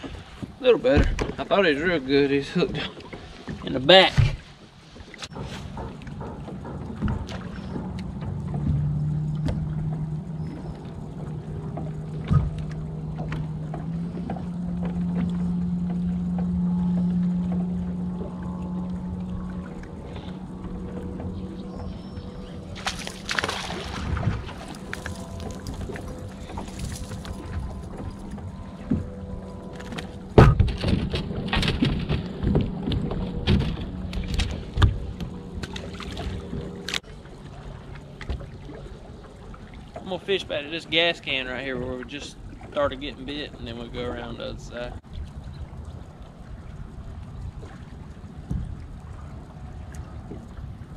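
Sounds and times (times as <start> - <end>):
knocks and rustles: 5.2 - 10.1, 22.8 - 35.4
electric trolling motor humming: 5.3 - 50.9.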